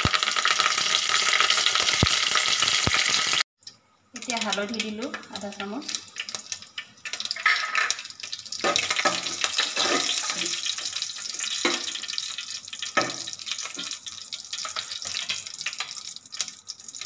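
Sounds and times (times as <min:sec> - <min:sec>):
hot oil sizzling and crackling: 0:00.0 - 0:17.0
spatula scraping: 0:08.7 - 0:10.5.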